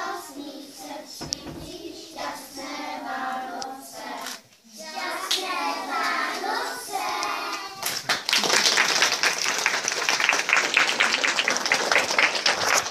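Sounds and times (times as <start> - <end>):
children singing: 0.0 - 8.0
audience clapping: 7.5 - 12.9.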